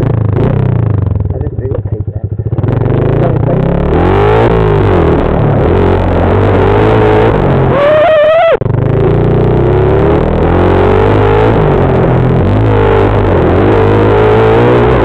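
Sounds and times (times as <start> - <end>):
off-road vehicle engine: 0.0 - 15.0.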